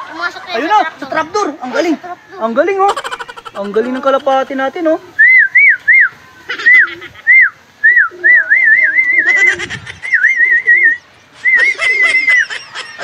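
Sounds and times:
person whistling: 5.2 - 6.1, 6.7 - 9.3, 10.1 - 12.2.

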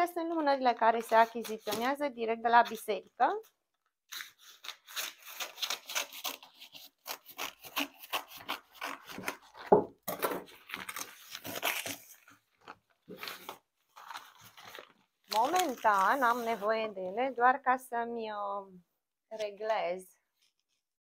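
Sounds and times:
rustling and crinkling: 9.5 - 17.3.

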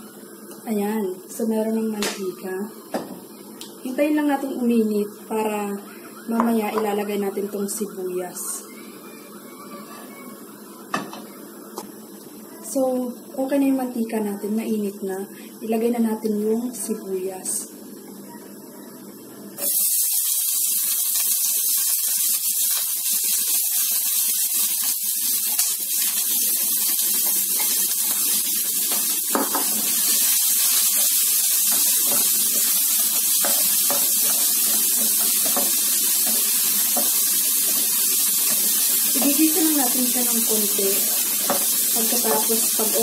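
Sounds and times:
onions sizzling in oil: 19.6 - 43.0.

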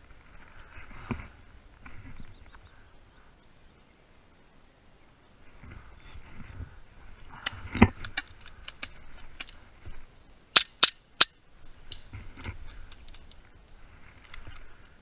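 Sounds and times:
faint clicks and pops: 7.4 - 9.6.

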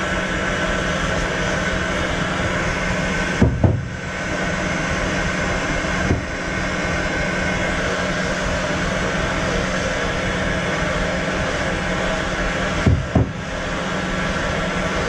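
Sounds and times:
workshop machinery drone: 0.0 - 15.0
short knocks: 3.4 - 3.9, 12.8 - 13.4.

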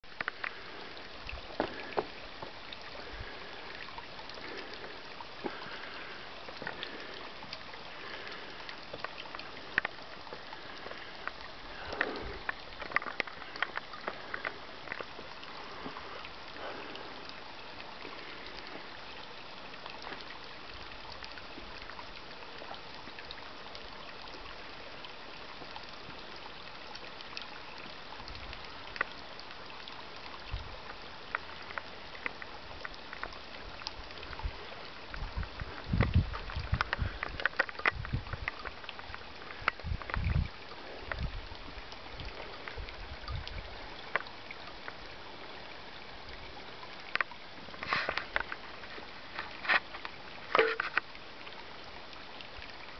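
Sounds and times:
brook trickling over rocks: 0.0 - 52.9.

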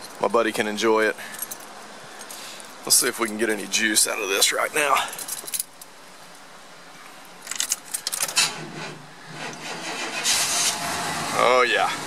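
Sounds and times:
keys rattling: 1.3 - 2.4, 5.0 - 5.9, 7.4 - 8.4
engine cranking and starting: 8.1 - 11.5.

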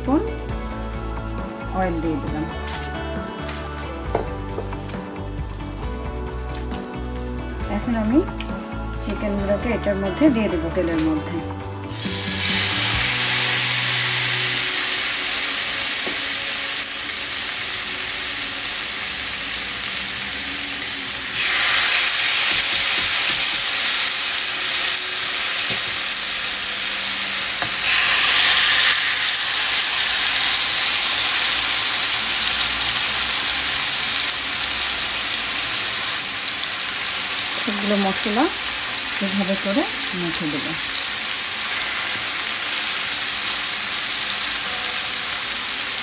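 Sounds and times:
chicken sizzling in frying pan: 11.9 - 46.0.

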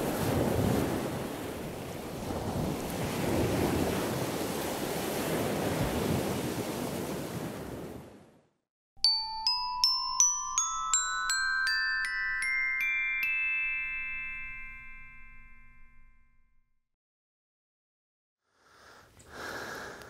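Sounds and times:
wind on microphone: 0.0 - 8.0
rising bright jingle: 9.0 - 16.6.

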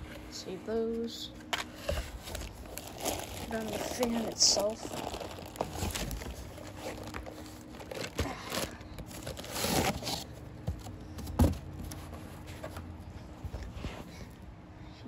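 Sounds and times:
cardboard box shifting: 1.7 - 14.1
plastic bags crinkling: 2.0 - 10.4.

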